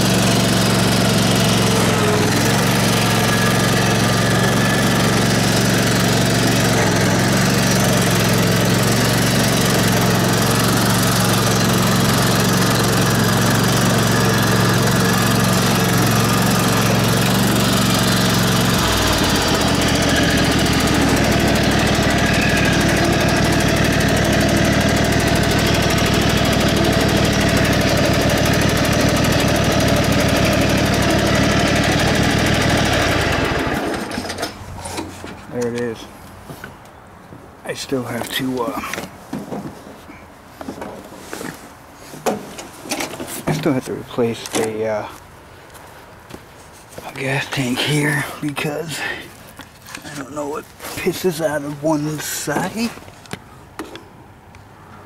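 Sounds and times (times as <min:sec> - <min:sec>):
riding mower engine running: 0:00.0 - 0:37.0, 0:47.0 - 0:54.0.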